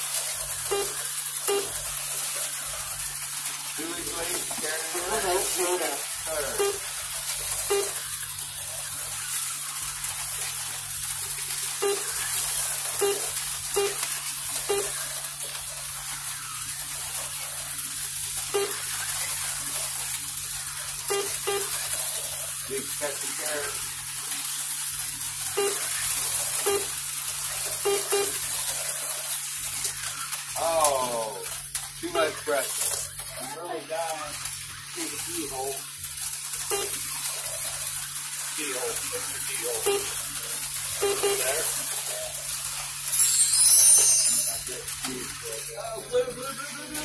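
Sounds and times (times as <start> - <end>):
slot cars whirring: 0.2 - 47.0
short pitched blips: 0.6 - 1.9, 5.4 - 8.1, 11.7 - 15.0, 18.5 - 19.0, 21.1 - 21.8, 25.5 - 27.0, 27.8 - 28.4, 36.7 - 37.0, 39.8 - 41.8
slot cars whirring on track: 38.5 - 47.0.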